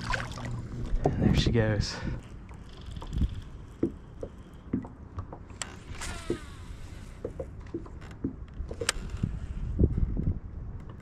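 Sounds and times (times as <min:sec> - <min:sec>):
water slapping against hull: 0:00.0 - 0:01.4, 0:02.0 - 0:09.2
wind rumbling on microphone: 0:00.0 - 0:11.0.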